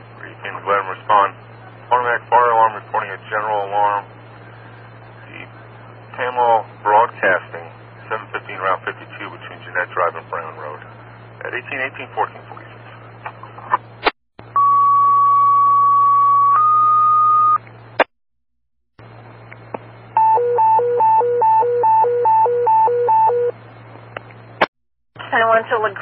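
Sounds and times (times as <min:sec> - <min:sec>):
radio hiss: 0:00.0 - 0:13.8
hi-lo warble tone: 0:14.5 - 0:17.6
two-tone pager alert: 0:20.2 - 0:23.5.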